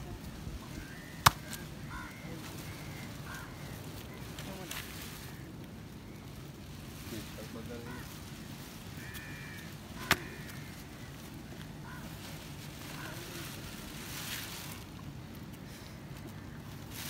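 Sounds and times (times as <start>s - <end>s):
faint distant voices: 9.1s - 14.8s.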